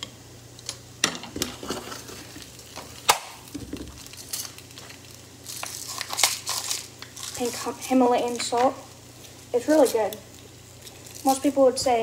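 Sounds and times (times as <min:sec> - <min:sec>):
faint sizzle: 0:00.0 - 0:12.0
utensil scraping a frying pan: 0:01.4 - 0:02.5.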